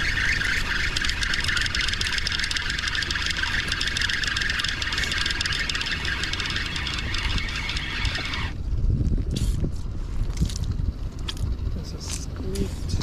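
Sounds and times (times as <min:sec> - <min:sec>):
fishing reel cranking: 0:00.0 - 0:08.6.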